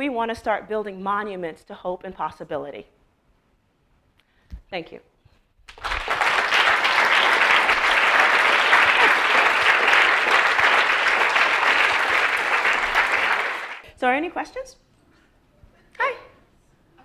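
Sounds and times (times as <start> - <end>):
audience applauding: 5.7 - 13.8.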